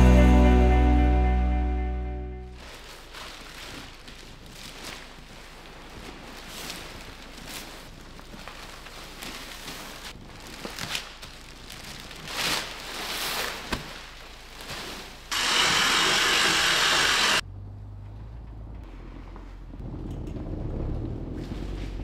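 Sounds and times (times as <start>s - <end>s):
plastic wrapping rustling: 2.5s - 15.4s.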